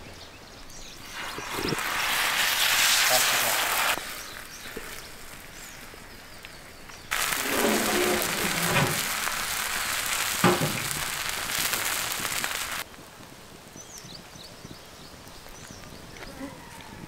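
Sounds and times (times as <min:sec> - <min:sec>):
eggs sizzling on griddle: 0:00.9 - 0:06.4, 0:07.1 - 0:12.9.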